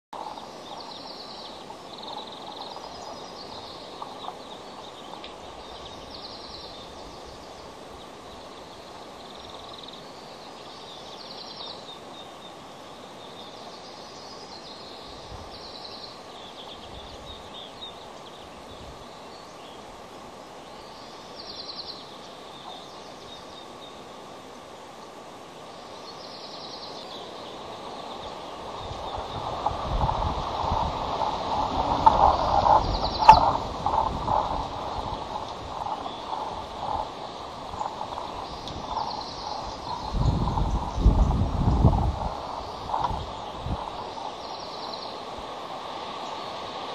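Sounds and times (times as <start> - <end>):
outdoor background hiss: 0.1 - 46.9
bird trilling: 30.8 - 41.1.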